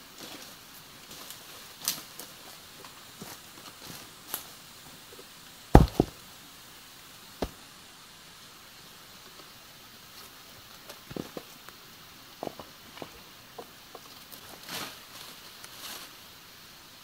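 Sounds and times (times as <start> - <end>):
sharp knocks: 5.8 - 6.2.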